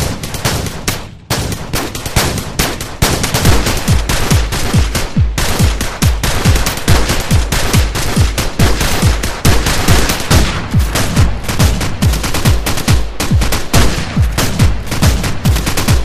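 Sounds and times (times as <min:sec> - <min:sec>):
hard-hitting kick drum: 0:02.0 - 0:16.0
fast electronic dance music: 0:03.6 - 0:16.0.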